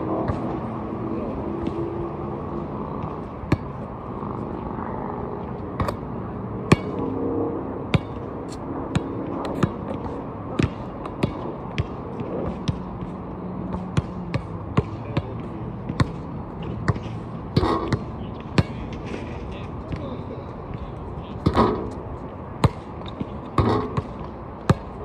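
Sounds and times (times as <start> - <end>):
basketball bouncing on court: 0.2 - 0.6, 7.9 - 8.3, 8.9 - 18.8, 22.6 - 25.0.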